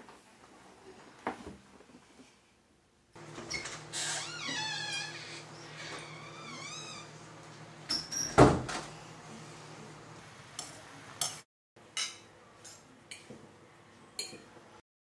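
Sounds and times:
door squeaking: 0:03.2 - 0:07.3, 0:07.9 - 0:08.9
door banging shut: 0:07.9 - 0:08.9.

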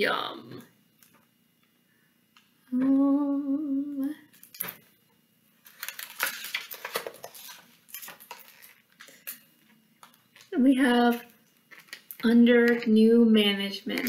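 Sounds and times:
woman humming: 0:02.7 - 0:04.3
book pages rustling: 0:05.6 - 0:10.6, 0:11.5 - 0:12.8.

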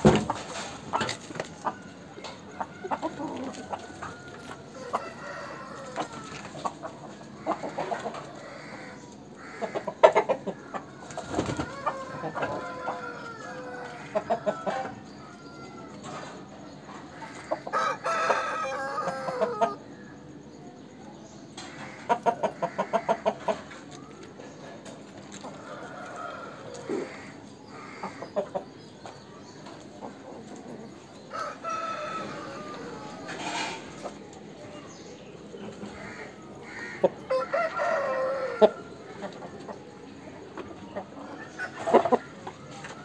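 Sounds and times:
rooster crowing: 0:02.6 - 0:06.4, 0:11.6 - 0:16.0, 0:17.7 - 0:19.8, 0:31.3 - 0:33.6, 0:36.0 - 0:38.9.

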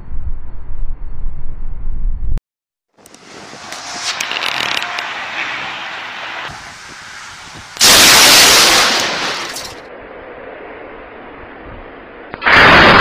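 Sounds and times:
wind on microphone: 0:06.5 - 0:07.8
loud thunderclap: 0:07.7 - 0:09.5, 0:12.4 - 0:13.0.

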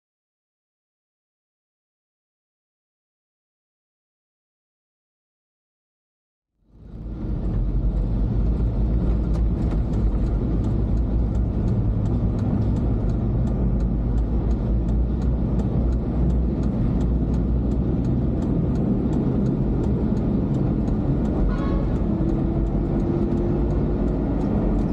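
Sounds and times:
car driving in traffic: 0:06.7 - 0:24.9
faint even ticking: 0:08.7 - 0:24.9.

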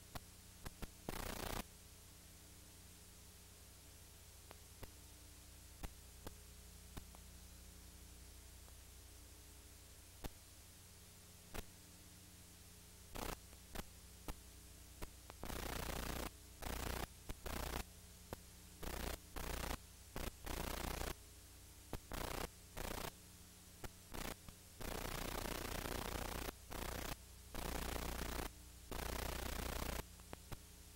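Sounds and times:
faint clicks: 0:00.0 - 0:01.7, 0:04.4 - 0:05.0, 0:05.8 - 0:07.3, 0:10.2 - 0:10.4, 0:13.1 - 0:14.4, 0:15.0 - 0:21.2, 0:23.8 - 0:30.7
harsh static hiss bursts: 0:00.0 - 0:01.8, 0:11.4 - 0:11.9, 0:13.0 - 0:21.2, 0:21.9 - 0:30.9
low electrical hum: 0:00.0 - 0:30.9.

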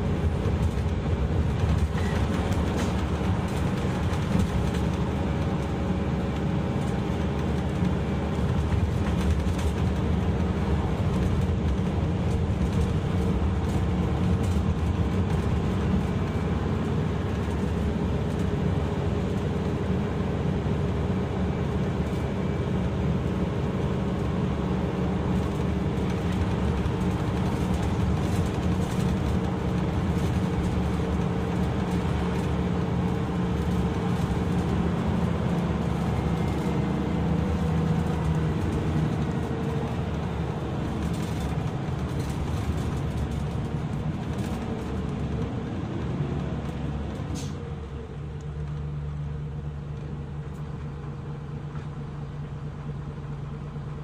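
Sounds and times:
bus engine droning: 0:00.0 - 0:54.0
road noise: 0:00.0 - 0:54.0.

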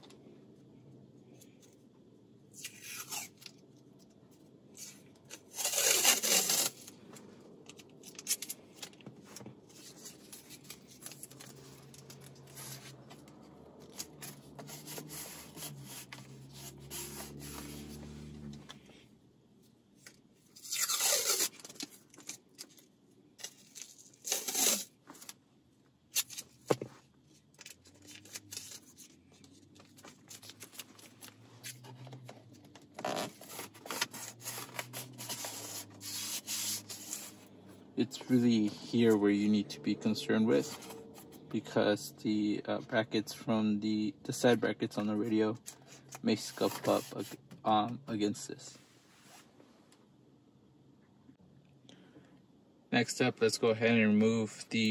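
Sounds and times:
tape rubbing and scraping: 0:02.5 - 0:03.7, 0:04.7 - 0:18.7, 0:20.0 - 0:22.8, 0:23.4 - 0:25.4, 0:26.1 - 0:39.4, 0:40.4 - 0:41.8, 0:44.4 - 0:47.6
tape ripping off roll: 0:04.8 - 0:07.0, 0:20.6 - 0:22.1, 0:23.4 - 0:25.3.

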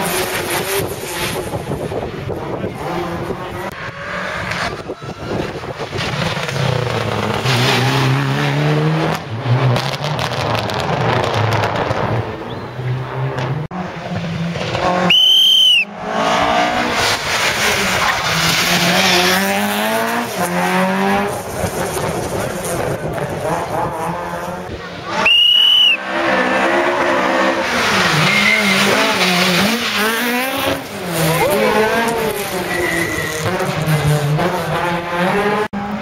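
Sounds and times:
rally car engines revving: 0:00.0 - 0:36.0
high-pitched squeal: 0:31.3 - 0:33.6.

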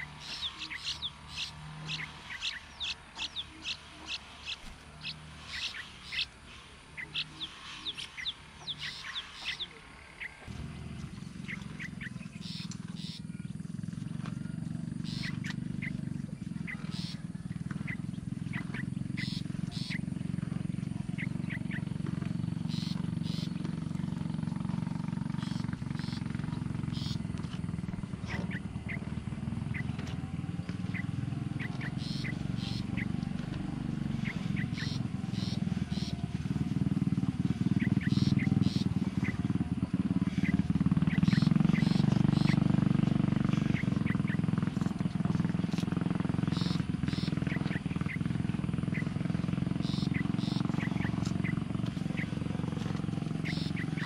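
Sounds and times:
high falling bird chirps: 0:00.0 - 0:06.4, 0:07.0 - 0:10.4, 0:11.4 - 0:13.3, 0:17.8 - 0:20.0, 0:22.6 - 0:23.6, 0:25.4 - 0:27.3, 0:30.8 - 0:33.2, 0:34.1 - 0:36.2, 0:37.8 - 0:39.4, 0:40.4 - 0:42.8, 0:46.5 - 0:48.3, 0:49.8 - 0:52.4, 0:53.3 - 0:54.0
low pulsing drone: 0:00.0 - 0:54.0.

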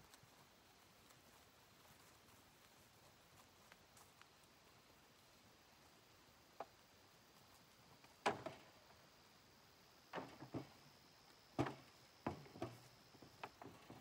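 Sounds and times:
bamboo poles knocking: 0:11.6 - 0:14.0.

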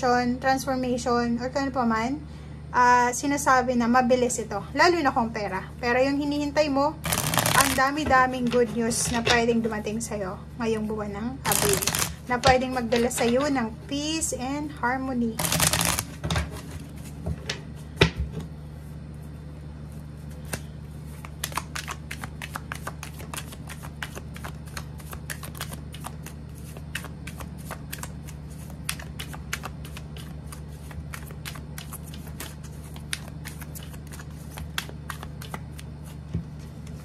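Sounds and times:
cards being shuffled: 0:07.0 - 0:07.9, 0:11.5 - 0:13.4, 0:15.4 - 0:17.2, 0:20.2 - 0:37.0.

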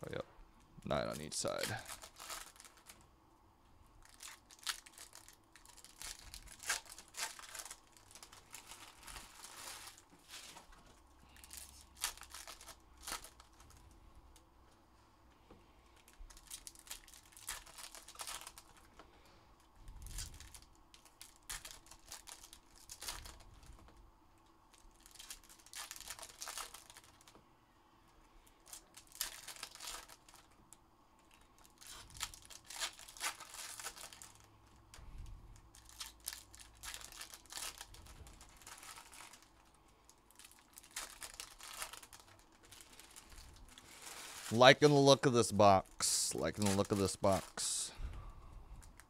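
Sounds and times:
foil wrappers tearing and crinkling: 0:01.4 - 0:03.0, 0:04.0 - 0:10.6, 0:11.3 - 0:13.8, 0:16.0 - 0:18.9, 0:20.0 - 0:23.6, 0:24.7 - 0:27.4, 0:28.6 - 0:30.6, 0:31.3 - 0:34.5, 0:35.7 - 0:47.9.

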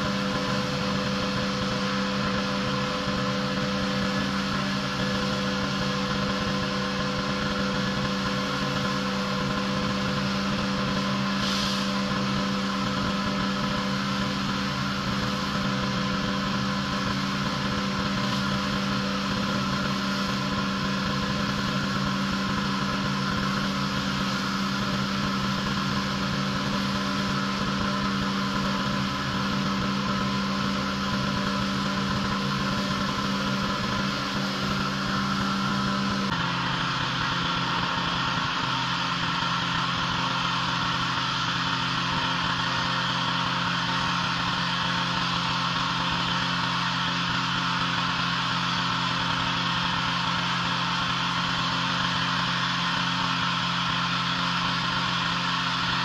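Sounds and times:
pressure washer engine running: 0:00.0 - 0:56.0
brief hiss: 0:11.4 - 0:12.0.

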